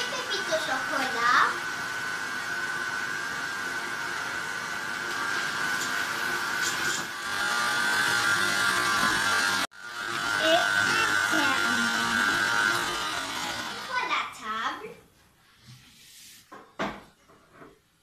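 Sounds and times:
stand mixer motor humming: 0.0s - 14.1s.

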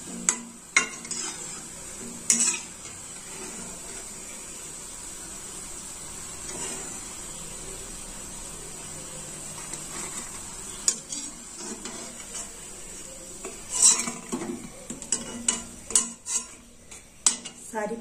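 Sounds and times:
food sizzling in hot oil: 0.0s - 18.0s
metal spoon clinking against pan: 0.1s - 1.5s, 2.2s - 3.0s, 13.4s - 17.7s.

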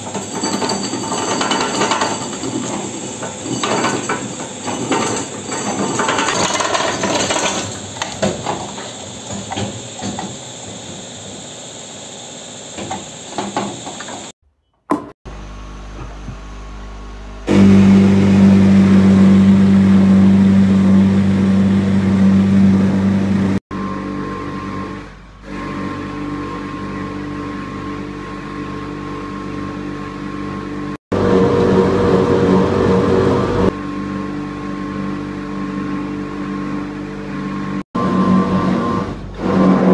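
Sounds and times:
spinning steel rollers: 0.0s - 10.7s
tyre buffing machine scraping: 0.0s - 10.9s, 17.4s - 28.4s, 35.6s - 39.9s.

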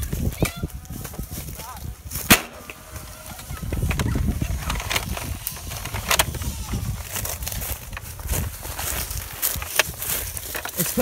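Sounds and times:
footsteps on dry leaves: 0.0s - 11.0s
camera handling rumble: 2.1s - 11.0s
sharp snap: 2.3s - 2.8s.

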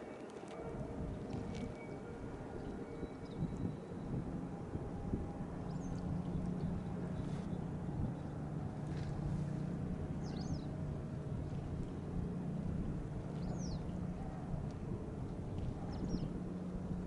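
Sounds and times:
boat engine idling: 1.9s - 17.0s.

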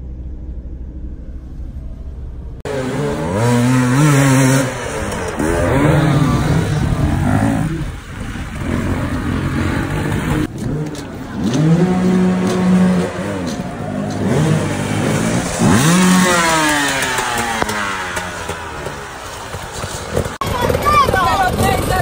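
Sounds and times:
dirt bike engine revving: 2.6s - 22.0s.

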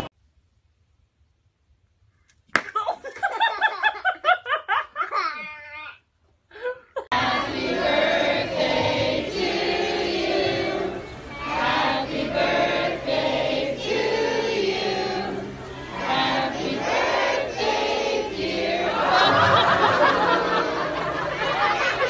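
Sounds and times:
crowd singing in unison: 7.1s - 22.0s.

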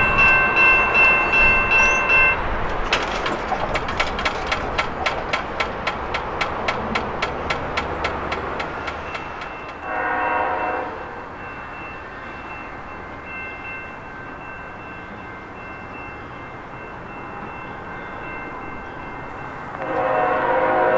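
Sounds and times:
railway crossing bell: 0.0s - 20.9s
locomotive air horn blast: 9.8s - 11.1s, 19.8s - 20.9s.

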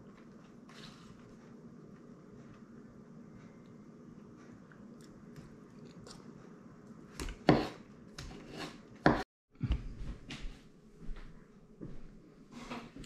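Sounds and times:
chewing: 4.7s - 6.4s
fork scraping on a plate: 7.5s - 9.2s.

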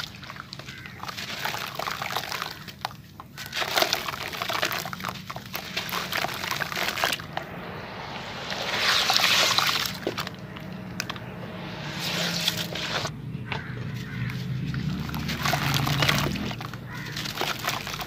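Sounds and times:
hands crumbling wet concrete: 0.0s - 7.3s, 14.0s - 18.0s
water sloshing: 0.0s - 18.0s.

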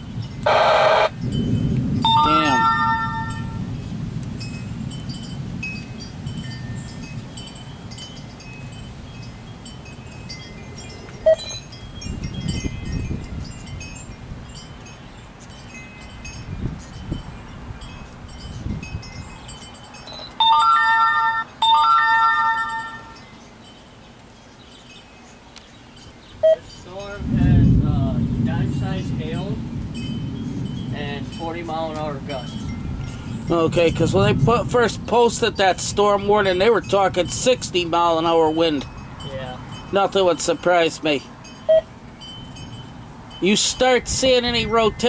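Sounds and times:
wind chimes tinkling: 0.0s - 0.5s, 1.1s - 45.0s
gusty storm wind: 0.0s - 21.8s, 26.3s - 45.0s
loud held tones: 0.4s - 1.2s, 2.0s - 3.7s, 20.2s - 23.2s
low rumbling: 27.1s - 36.5s.

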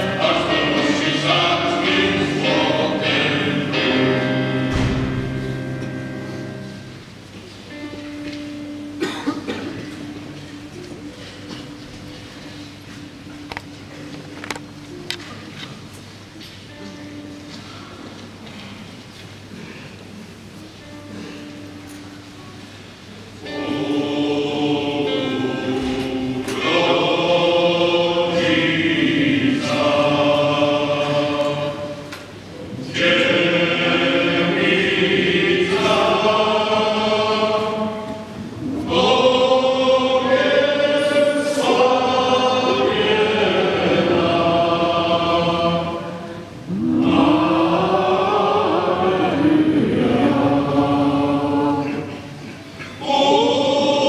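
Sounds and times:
male choir singing: 0.0s - 5.4s, 23.4s - 54.0s.

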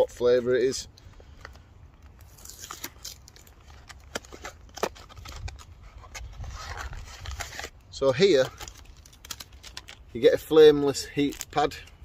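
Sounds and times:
plastic packaging crinkling: 1.3s - 12.0s.

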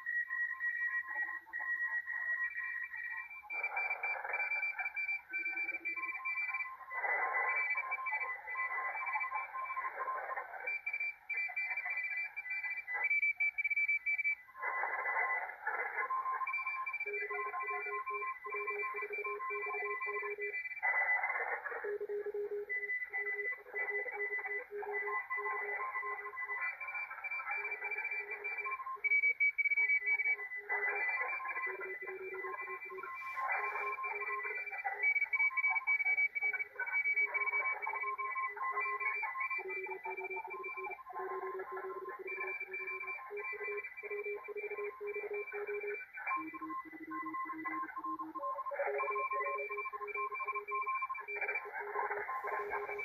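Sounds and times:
morse code beeps: 21.9s - 53.0s
radio band hiss: 51.8s - 53.0s.

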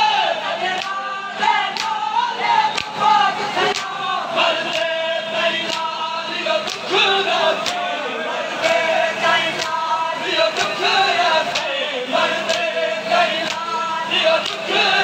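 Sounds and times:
men chanting together: 0.0s - 15.0s.

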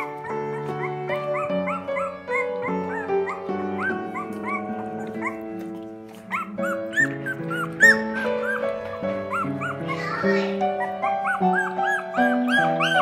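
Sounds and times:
background music with held notes: 0.0s - 13.0s
puppy whimpering: 0.0s - 13.0s.

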